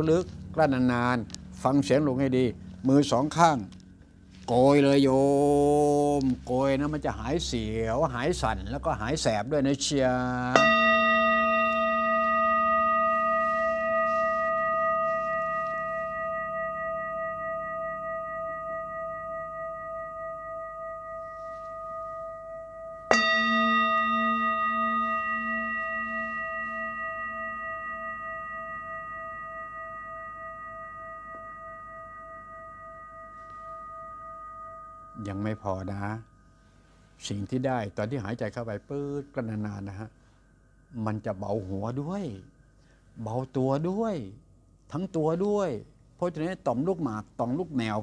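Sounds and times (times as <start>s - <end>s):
wavering hum: 0.0s - 37.4s
struck bell ringing: 10.3s - 37.0s.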